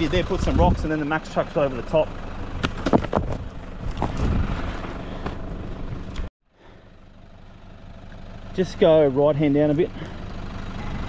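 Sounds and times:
vehicle engine running: 0.0 - 11.0
plastic board scraping on stony dirt: 2.6 - 6.0.

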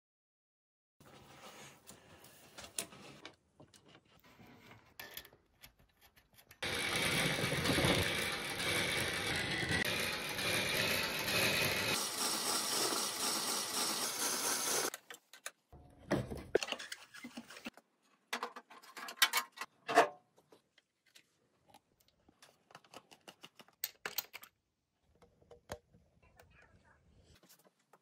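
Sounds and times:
mechanical running noise: 6.6 - 14.9.

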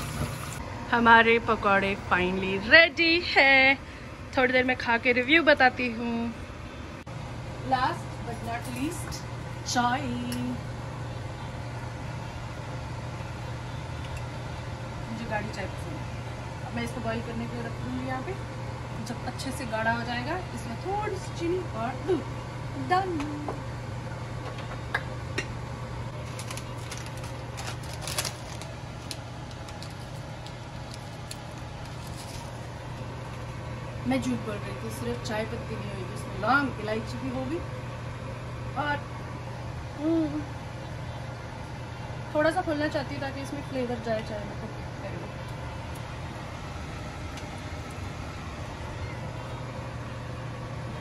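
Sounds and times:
kitchen background hum and hiss: 0.0 - 51.0
plastic packet crinkling: 26.2 - 33.4.

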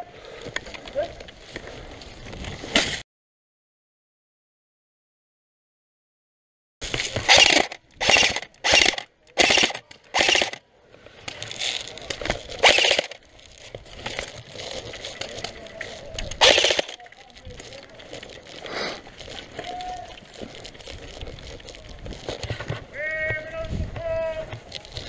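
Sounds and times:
airsoft rifle full-auto bursts: 7.1 - 10.6, 12.6 - 13.2, 16.4 - 17.1.

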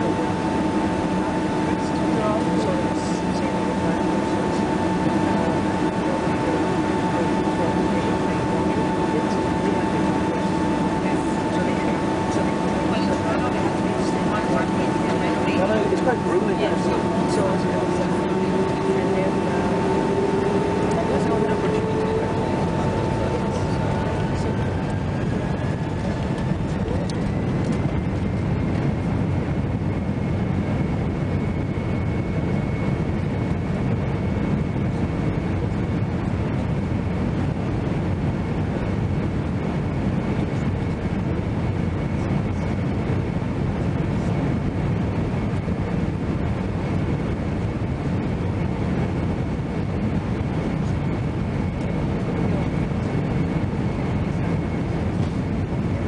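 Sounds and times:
whine climbing in pitch: 0.0 - 37.3
jet engines rumbling at takeoff: 0.0 - 56.0.

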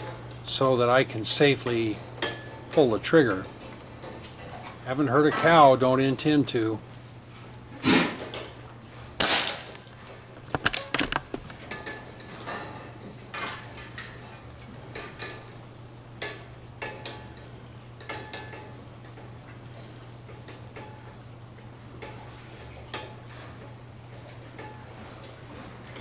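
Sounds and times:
steady low hum: 0.0 - 26.0
air gun shot: 7.8 - 8.2, 9.2 - 9.7.

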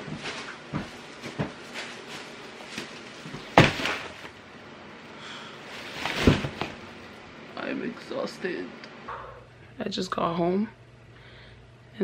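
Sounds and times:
plastic bags crinkling: 1.0 - 4.4, 5.6 - 7.1
bags thudding on a table: 2.2 - 4.4, 5.8 - 6.9.

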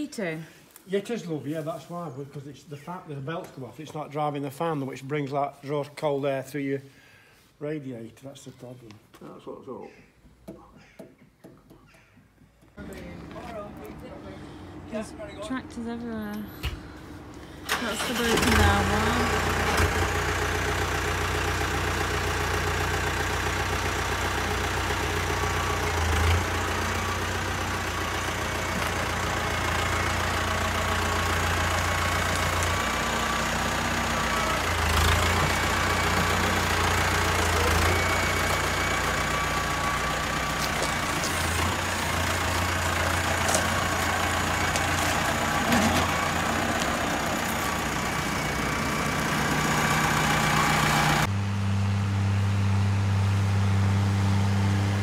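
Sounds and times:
tractor diesel engine idling: 12.8 - 55.0.

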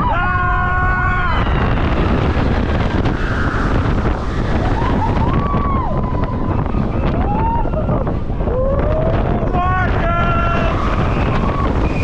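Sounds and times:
roller coaster train rumbling: 0.0 - 12.0
wind over microphone: 0.0 - 12.0
high gliding tones: 1.9 - 7.0.

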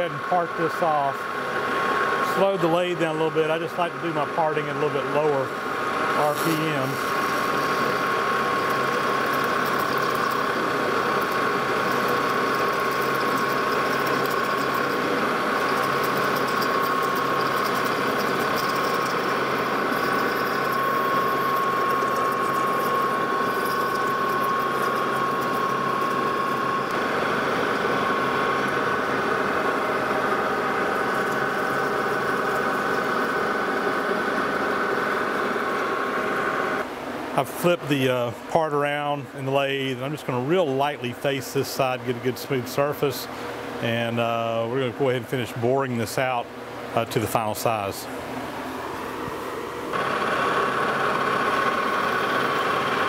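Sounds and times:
metal lathe running: 0.0 - 36.9, 48.2 - 53.0
parting tool cutting metal: 6.5 - 27.0.

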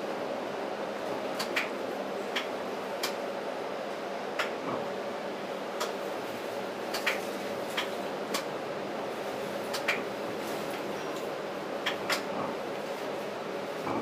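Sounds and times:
streetcar running hum: 0.0 - 14.0
clicks and rattles of tracks: 1.1 - 3.2, 6.9 - 8.5, 9.7 - 12.8, 13.8 - 14.0.

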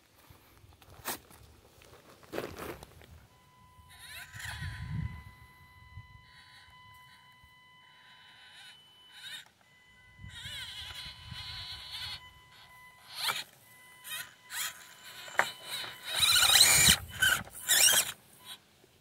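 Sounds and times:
faint steady high tone: 3.0 - 18.8
electric motor whining: 3.5 - 18.6.

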